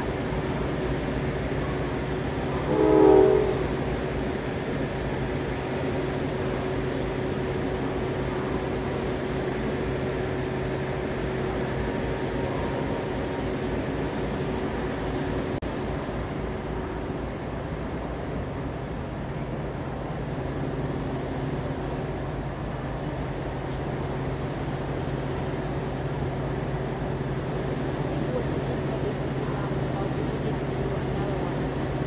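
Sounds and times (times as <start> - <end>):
low hum of standing train: 0.0 - 32.0
train horn blast: 2.6 - 3.9.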